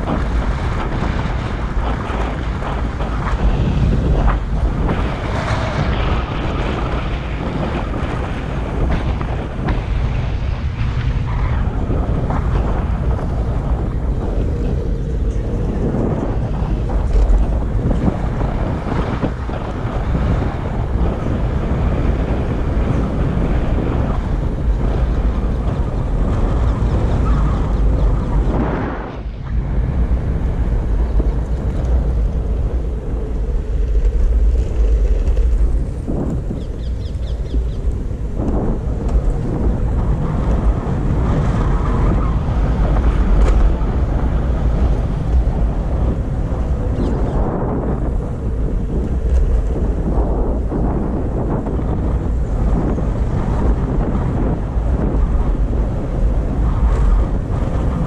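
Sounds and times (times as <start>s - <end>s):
electric skateboard rumble: 0.0s - 58.0s
wind buffeting microphone: 0.0s - 58.0s.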